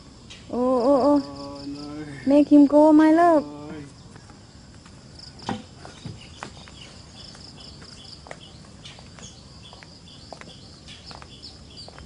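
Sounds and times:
insects droning: 0:00.0 - 0:12.0
footsteps on wooden walkway: 0:04.1 - 0:12.0.

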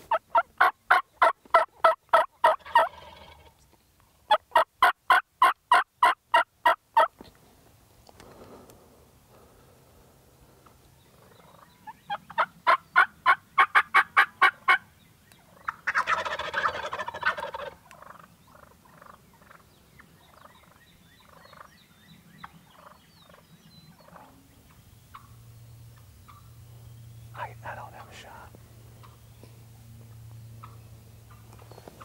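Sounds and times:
turkey gobble: 0:00.0 - 0:03.6, 0:04.3 - 0:07.1, 0:11.1 - 0:21.8, 0:22.4 - 0:25.4, 0:30.6 - 0:31.6
turkeys calling: 0:00.0 - 0:03.6, 0:04.3 - 0:07.3, 0:10.4 - 0:32.0.

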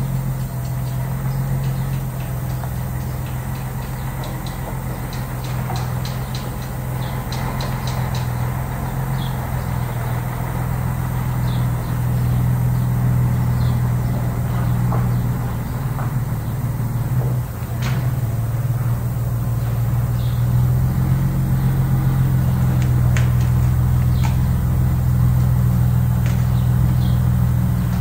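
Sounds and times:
diesel truck engine reversing: 0:00.0 - 0:28.0.

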